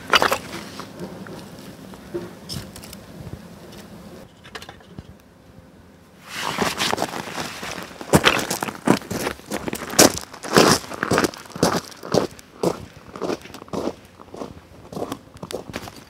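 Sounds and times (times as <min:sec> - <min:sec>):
crunching and scraping: 0:00.0 - 0:05.1, 0:06.2 - 0:16.0.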